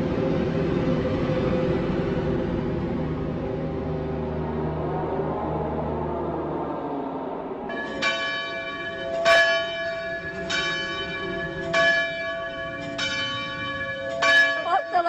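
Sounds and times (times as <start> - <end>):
church bell tolling: 7.7 - 15.0.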